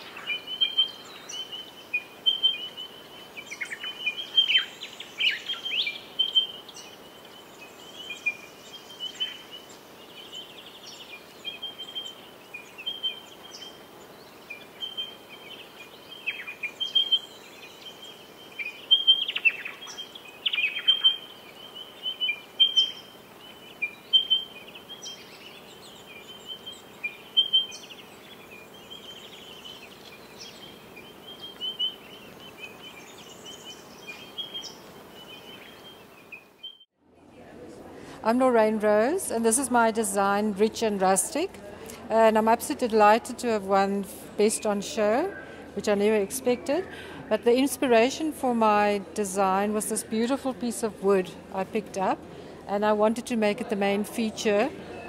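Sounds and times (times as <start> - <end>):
small birds chirping: 0.0 - 36.9.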